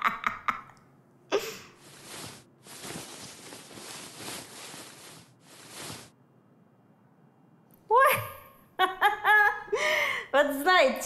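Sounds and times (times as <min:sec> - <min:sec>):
rustling and shuffling: 0:01.8 - 0:06.2.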